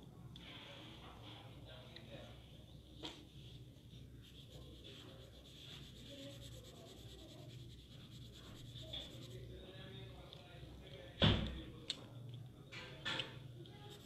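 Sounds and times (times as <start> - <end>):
felt-tip pen scribbling on paper: 4.2 - 9.4.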